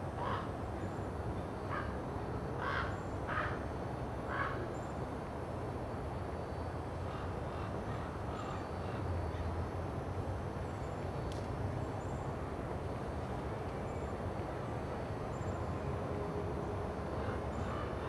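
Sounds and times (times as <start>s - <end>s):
crow cawing: 0.2s - 0.5s, 2.6s - 3.6s, 4.3s - 4.6s.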